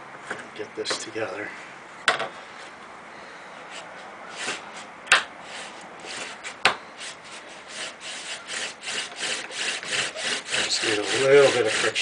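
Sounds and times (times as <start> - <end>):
bow drill spindle rubbing: 3.7 - 4.6, 5.4 - 12.0.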